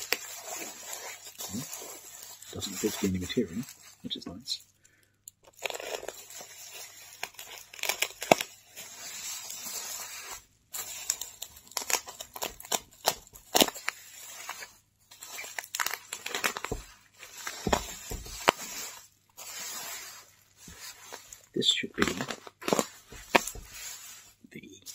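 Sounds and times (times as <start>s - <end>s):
packing tape ripping: 0.0s - 3.4s, 5.4s - 24.2s
bubble wrap crinkling: 0.0s - 24.9s.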